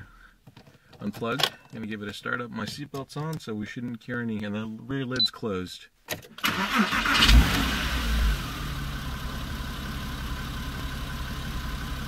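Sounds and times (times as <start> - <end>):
car engine starting and idling: 6.4 - 12.0.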